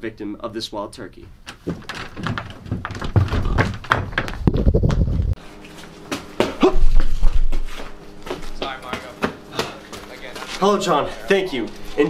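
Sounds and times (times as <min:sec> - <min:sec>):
microphone handling noise: 0:03.2 - 0:05.4
wind rumbling on microphone: 0:04.4 - 0:05.4.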